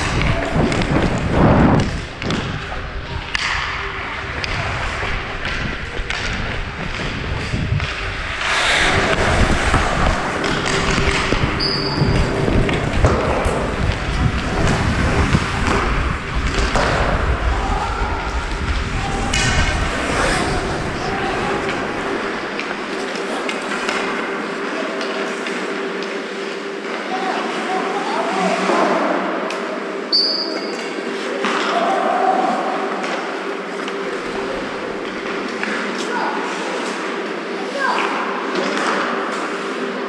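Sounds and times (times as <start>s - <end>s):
wind rumbling on microphone: 0.0s - 22.8s
skate blades scraping on ice: 6.2s - 16.0s.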